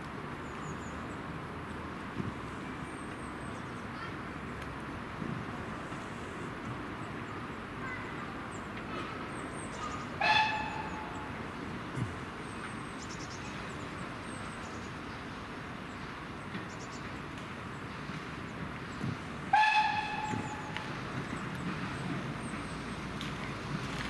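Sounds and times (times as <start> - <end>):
steam whistle blasts: 19.5 - 20.8.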